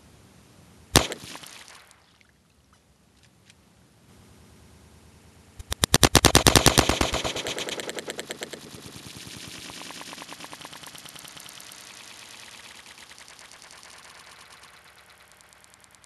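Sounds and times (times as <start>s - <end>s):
gunshot hitting water jug: 1.0s - 1.8s
water spraying out: 5.6s - 16.0s.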